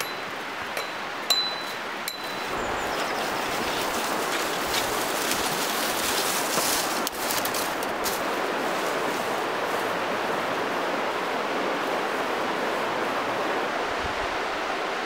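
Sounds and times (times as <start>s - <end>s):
river rapids rushing: 0.0s - 15.0s
footsteps on dry leaves: 1.6s - 10.1s
branches dragging on ground: 1.6s - 10.3s.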